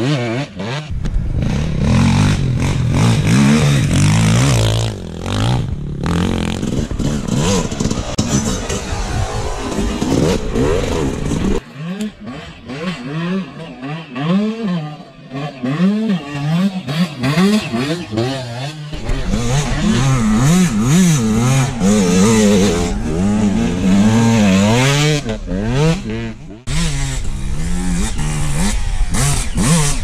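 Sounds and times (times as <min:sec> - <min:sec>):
dirt bike engine revving: 0:00.0 - 0:30.0.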